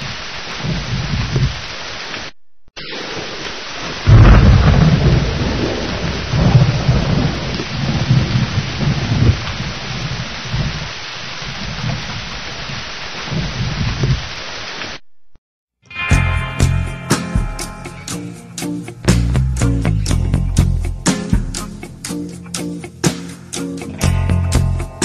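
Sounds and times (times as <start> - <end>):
steady rain hiss: 0.0 - 15.0, 17.2 - 25.0
rolling thunder rumbles: 2.9 - 14.3.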